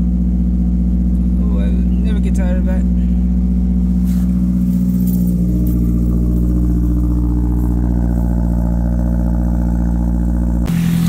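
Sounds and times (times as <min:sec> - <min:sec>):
car engine humming steadily: 0:00.0 - 0:11.0.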